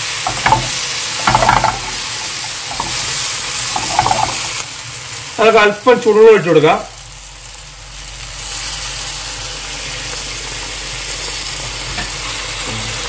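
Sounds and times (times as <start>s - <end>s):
water poured into hot pan: 0.0s - 4.8s
masala sizzling and bubbling: 0.0s - 13.0s.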